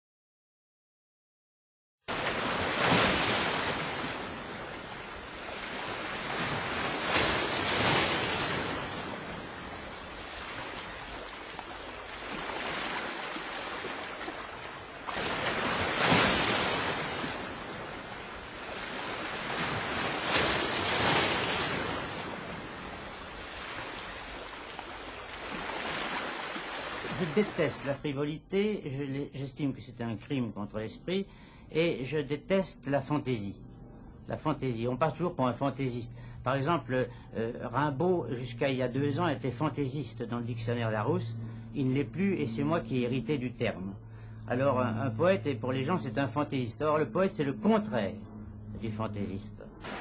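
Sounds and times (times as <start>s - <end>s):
sea waves breaking: 2.1s - 28.0s, 38.0s - 50.0s.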